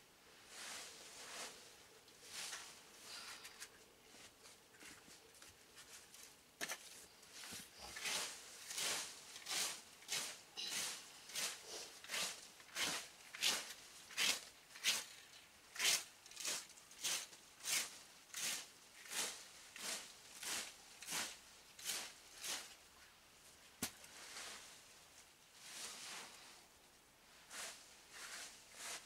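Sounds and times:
rake scraping through leaves: 0:00.5 - 0:03.4, 0:07.3 - 0:22.8, 0:24.1 - 0:24.9, 0:25.6 - 0:26.6, 0:27.4 - 0:29.0.

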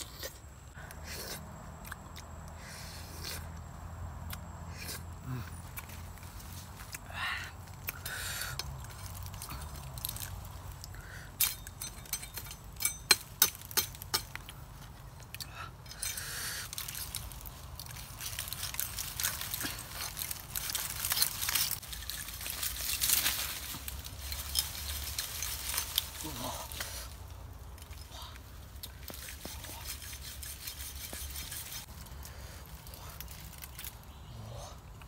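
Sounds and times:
rustling and scraping: 0:08.5 - 0:34.3.

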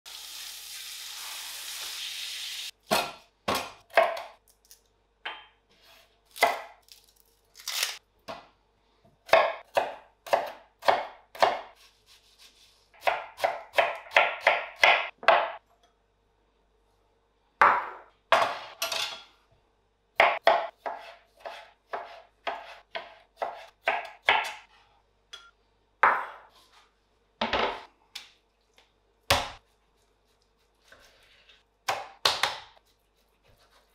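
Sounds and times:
meat sizzling in a pan: 0:00.1 - 0:02.7
knife chopping on plastic board: 0:09.3 - 0:11.7, 0:31.8 - 0:32.8.

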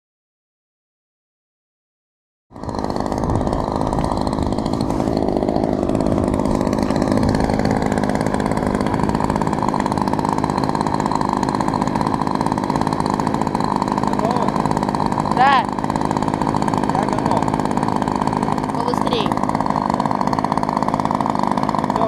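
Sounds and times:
model plane engine running: 0:02.6 - 0:22.0.

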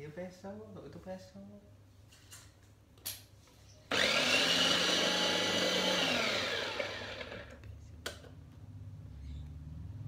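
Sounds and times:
food chopper motor whining: 0:03.9 - 0:07.6.

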